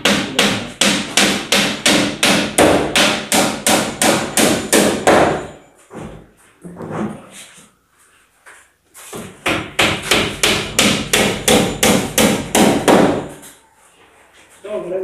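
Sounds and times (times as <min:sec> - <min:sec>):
hammer striking: 0:00.0 - 0:05.6, 0:09.4 - 0:13.4.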